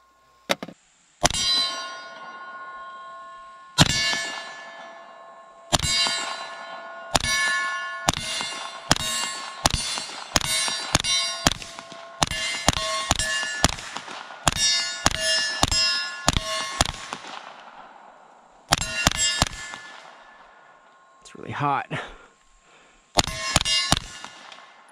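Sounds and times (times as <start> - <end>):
steel target ringing: 1.2 - 21.2, 23.2 - 24.9
suppressed gunshots: 8.1 - 17.8, 18.7 - 20.1, 23.2 - 24.8.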